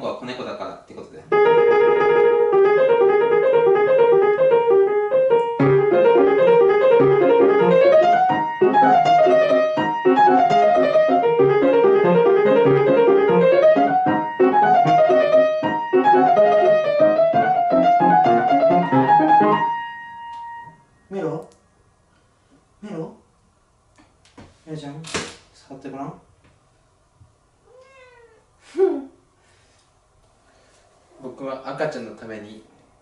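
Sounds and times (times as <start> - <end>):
grand piano: 1.3 - 20.8.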